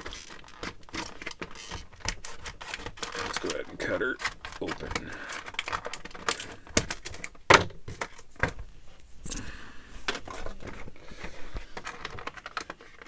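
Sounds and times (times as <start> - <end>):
scissors cutting plastic packaging: 0.0 - 7.3.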